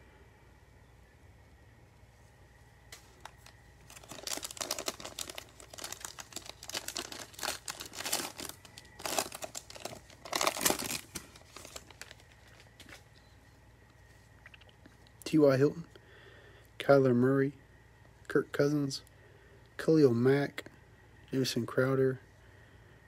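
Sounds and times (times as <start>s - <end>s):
plastic wrapper crinkling: 2.9s - 13.1s.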